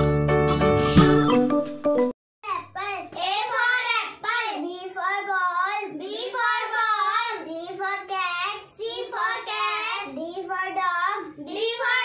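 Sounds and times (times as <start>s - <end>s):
girl chanting the alphabet: 2.4s - 12.0s.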